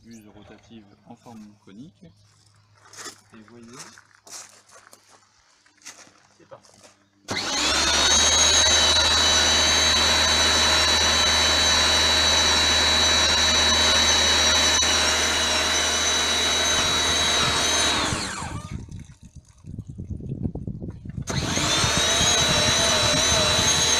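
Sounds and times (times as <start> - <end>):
pressure washer motor humming: 7.3 - 18.9, 21.3 - 23.9.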